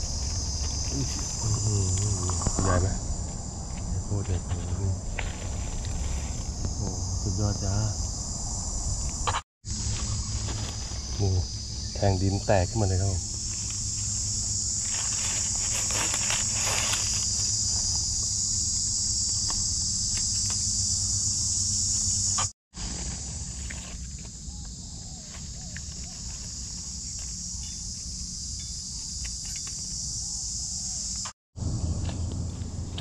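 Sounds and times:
insects chorus: 0.0s - 33.0s
dry leaves rustling: 3.0s - 6.8s, 9.7s - 12.1s, 12.8s - 18.8s, 22.7s - 28.5s.

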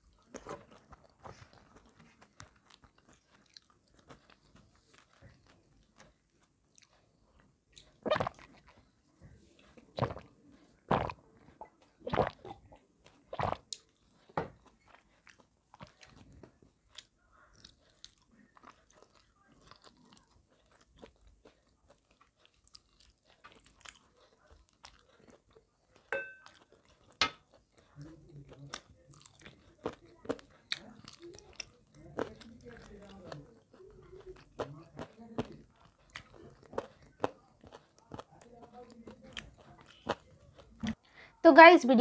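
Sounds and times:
soft chewing: 0.0s - 41.4s
gulping water: 7.9s - 8.7s, 9.8s - 13.8s.

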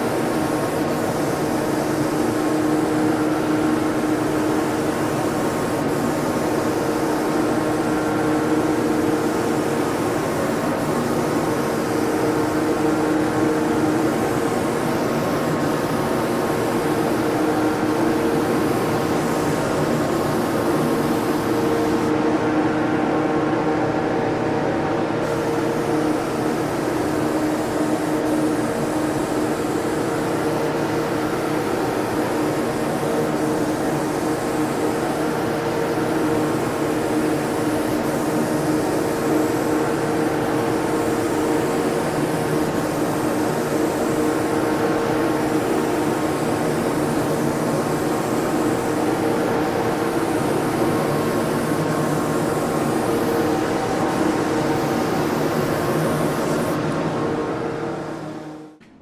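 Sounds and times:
turbine hum: 0.0s - 58.8s
exhaust fan air rush: 0.0s - 59.0s.

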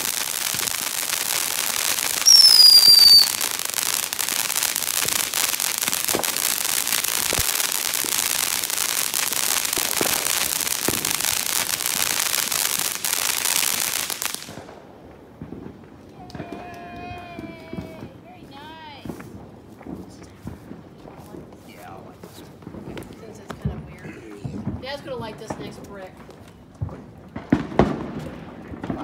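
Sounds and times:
crackling pops: 0.0s - 14.8s
firework fountain hissing: 0.0s - 14.8s, 16.2s - 23.5s
firework whistle: 2.1s - 3.6s.

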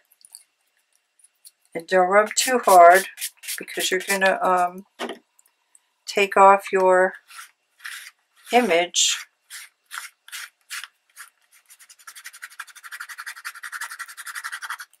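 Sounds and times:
cloth rubbing on paper: 7.2s - 14.9s.

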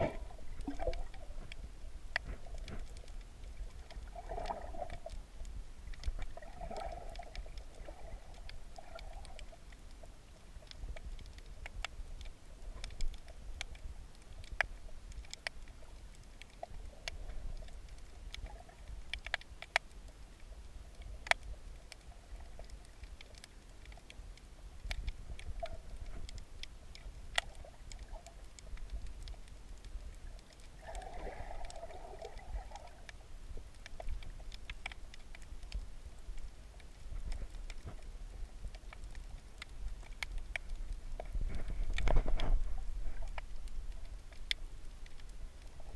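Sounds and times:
low underwater rumble: 0.0s - 19.1s, 24.1s - 45.9s
underwater clicks and crackles: 0.0s - 45.9s.

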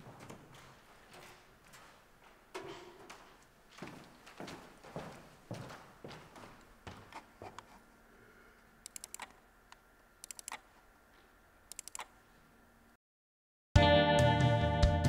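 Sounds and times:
footsteps on wooden floor: 0.0s - 7.8s
keyboard clicking: 8.8s - 9.4s, 10.2s - 10.6s, 11.7s - 12.1s.

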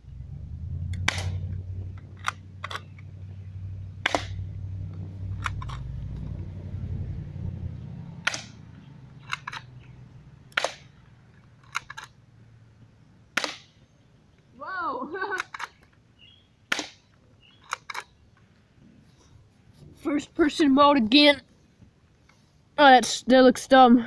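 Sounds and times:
low rumble: 0.0s - 10.5s
airsoft gun snaps: 1.0s - 1.4s, 8.2s - 8.6s, 10.5s - 10.9s.

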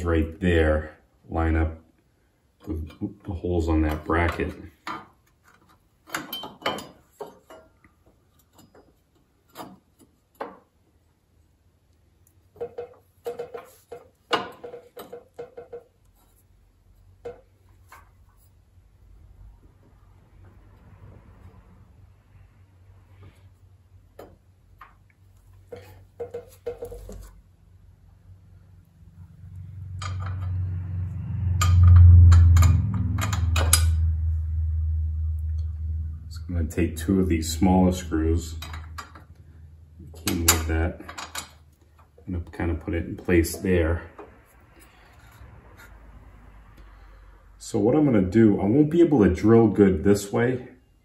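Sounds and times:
metal clinking and rattling: 6.0s - 10.6s
low hum: 27.6s - 40.7s.

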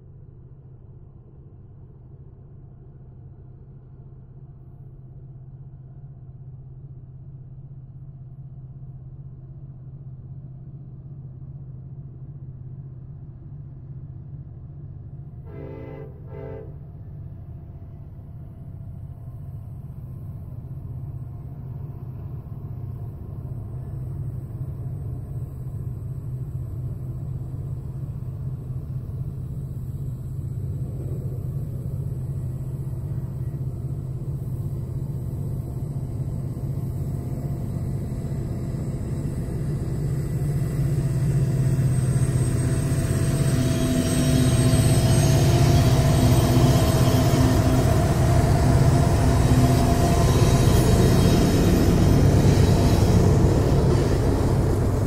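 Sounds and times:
diesel locomotive rumble: 0.0s - 55.0s
train horn toot: 15.4s - 16.9s
whining tones: 25.8s - 55.0s.

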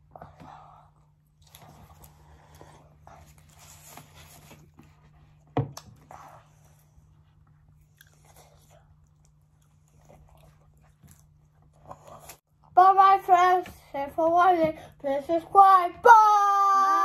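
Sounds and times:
child chewing crunchy food: 1.0s - 12.6s.

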